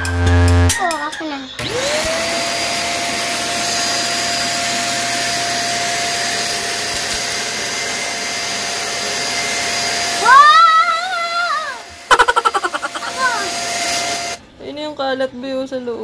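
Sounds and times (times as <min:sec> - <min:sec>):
vacuum cleaner running: 0:01.6 - 0:14.4
loud wavering pitched cry: 0:10.2 - 0:13.6.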